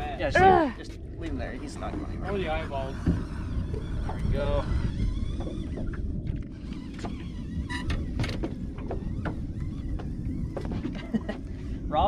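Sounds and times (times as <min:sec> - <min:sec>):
boat low rumble: 0:00.0 - 0:12.0.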